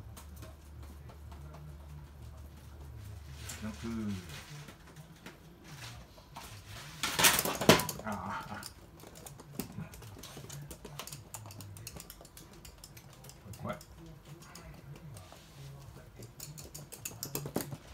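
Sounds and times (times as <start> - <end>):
clattering noise: 4.3 - 13.8
dog claws clicking on floor: 7.0 - 17.9.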